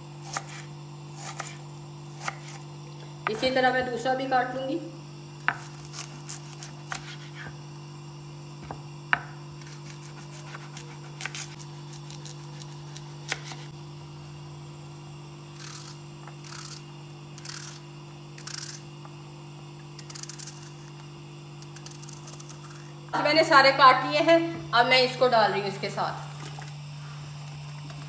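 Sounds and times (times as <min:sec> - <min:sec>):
knife slicing onion: 0:00.0 - 0:04.0, 0:05.4 - 0:07.7, 0:08.6 - 0:13.7, 0:15.5 - 0:19.0, 0:19.9 - 0:21.0, 0:21.6 - 0:22.9
steady low hum: 0:00.0 - 0:28.0.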